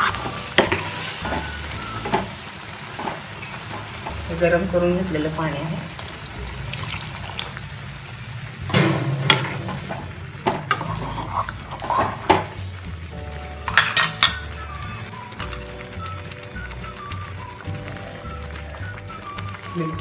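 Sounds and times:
steel ladle knocking pan: 0.0 - 2.4, 8.7 - 12.6, 13.7 - 14.5
hot water pouring: 0.0 - 20.0
simmering sizzling mix: 0.0 - 20.0.

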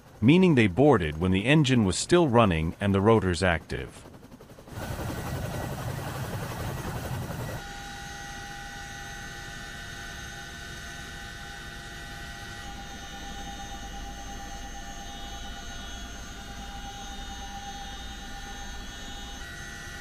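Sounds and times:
helicopter rotor and engine noise: 0.0 - 20.0
high-pitched whines: 7.5 - 20.0.

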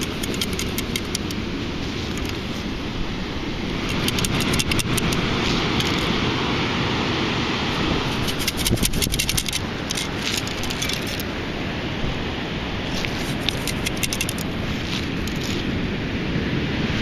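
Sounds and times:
sand rattling in metal mesh: 0.0 - 2.6, 3.8 - 6.2, 8.0 - 11.3, 12.9 - 15.8.

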